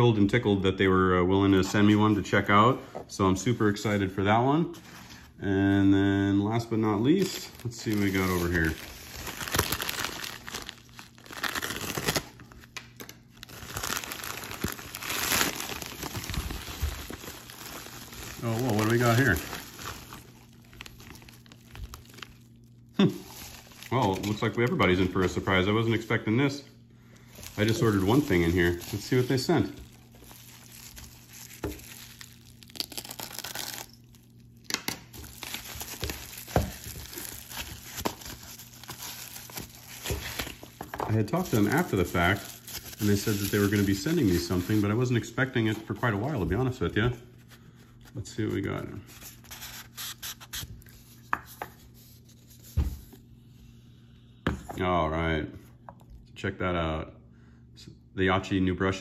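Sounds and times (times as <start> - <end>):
padded envelope plastic crinkling: 6.8 - 26.6, 27.2 - 53.1.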